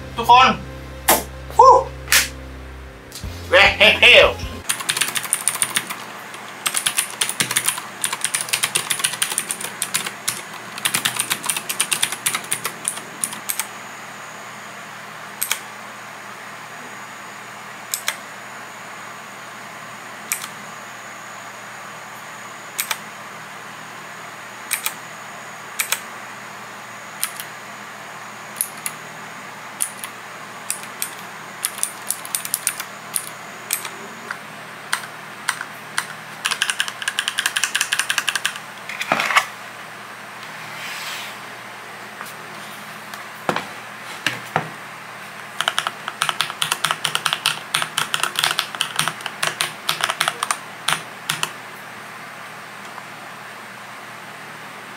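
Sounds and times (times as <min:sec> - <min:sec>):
mechanical keyboard typing: 0:04.6 - 0:13.7, 0:15.4 - 0:15.6, 0:17.9 - 0:18.2, 0:20.3 - 0:20.5, 0:22.8 - 0:23.0, 0:24.7 - 0:25.0, 0:25.8 - 0:26.0, 0:27.2 - 0:27.5, 0:28.6 - 0:29.0, 0:29.8 - 0:33.9, 0:34.9 - 0:38.7, 0:45.4 - 0:51.6.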